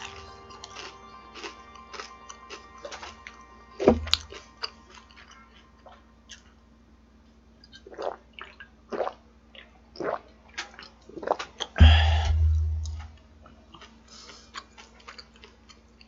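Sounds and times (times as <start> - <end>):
faint chewing: 0.0 - 6.6, 12.5 - 16.0
man gulping a drink: 11.2 - 13.1
loud burp: 11.8 - 12.7.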